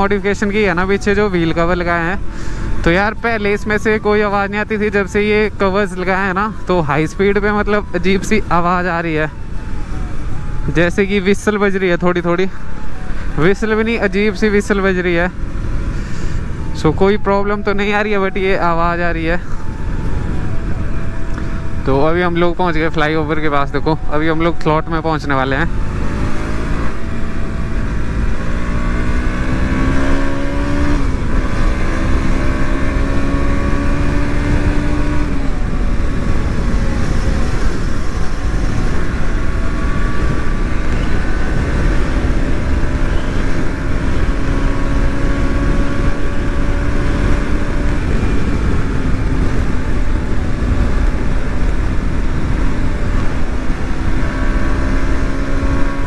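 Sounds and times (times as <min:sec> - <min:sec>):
motorcycle engine accelerating: 0:07.4 - 0:17.6, 0:24.0 - 0:56.0
wind rush over microphone: 0:30.6 - 0:55.9.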